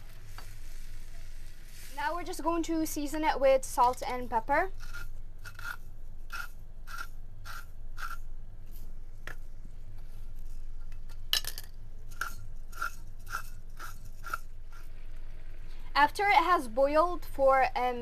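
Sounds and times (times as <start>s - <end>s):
spice mill grinding: 3.8s - 8.3s, 12.1s - 14.9s.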